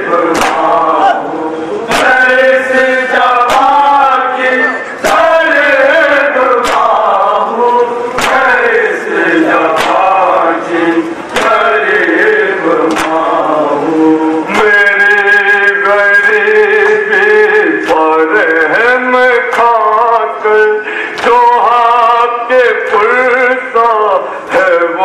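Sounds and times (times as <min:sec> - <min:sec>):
young men chanting a lament: 0:00.0 - 0:25.0.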